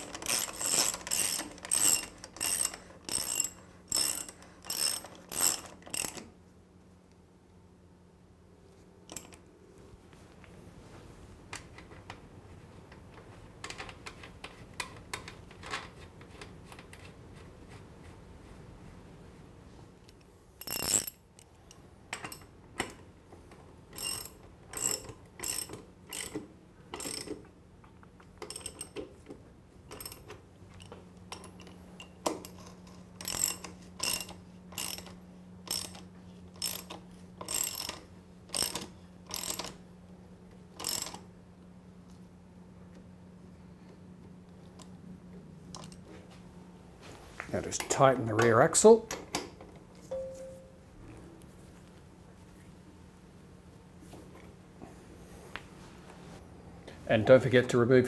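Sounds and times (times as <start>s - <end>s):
ratchet wrench clicking: 0.0s - 6.2s, 20.6s - 21.2s, 33.2s - 36.0s, 36.6s - 39.8s
faint low hum: 0.0s - 58.0s.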